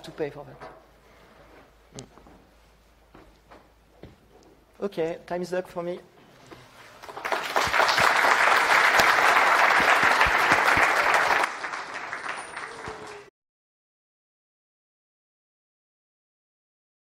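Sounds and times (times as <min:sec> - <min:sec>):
audience applauding: 0:07.0 - 0:13.3.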